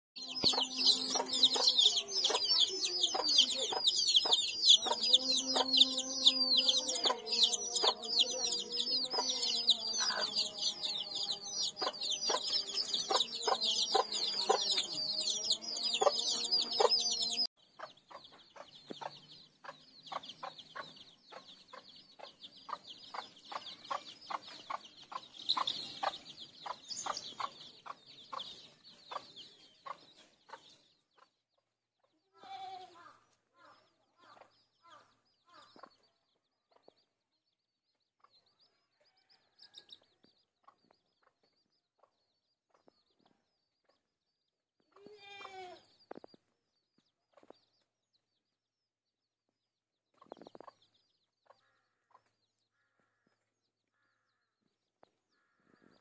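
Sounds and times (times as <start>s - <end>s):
hen clucking: 0.2s - 31.3s
chicks peeping: 0.2s - 32.2s, 32.8s - 37.2s, 38.2s - 44.1s, 44.9s - 48.4s, 50.1s - 53.4s.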